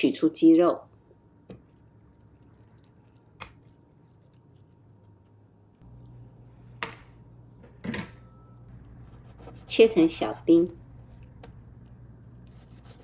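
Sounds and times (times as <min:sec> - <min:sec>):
low steady hum: 0:00.0 - 0:13.0
soft squelching of raw meat: 0:01.6 - 0:06.7.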